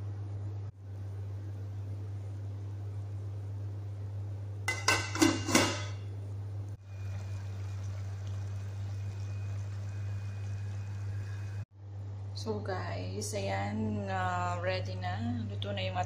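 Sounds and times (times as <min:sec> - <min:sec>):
steady low hum: 0:00.0 - 0:16.0
metal lid clanking on pot: 0:04.7 - 0:06.0.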